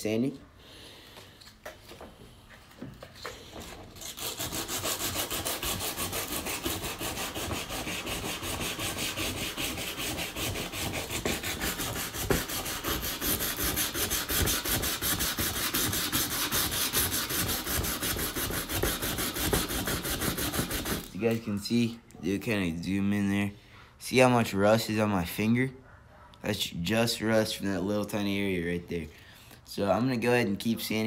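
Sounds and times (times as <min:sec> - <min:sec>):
sandpaper rasping on metal: 0:03.9 - 0:21.4.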